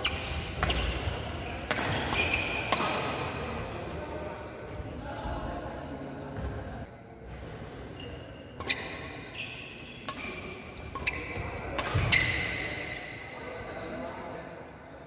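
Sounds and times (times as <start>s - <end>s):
rackets hitting shuttlecock: 0.0s - 3.5s, 10.0s - 13.2s.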